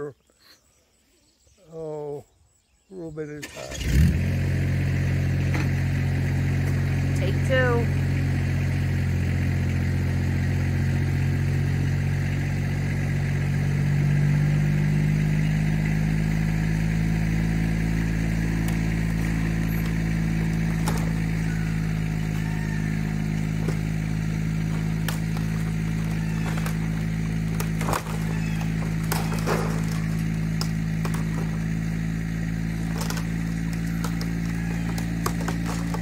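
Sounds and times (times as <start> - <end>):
vehicle engine straining: 3.4 - 36.0.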